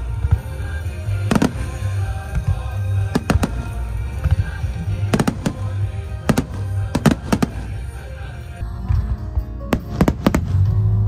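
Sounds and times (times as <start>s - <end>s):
music playing: 0.0s - 11.0s.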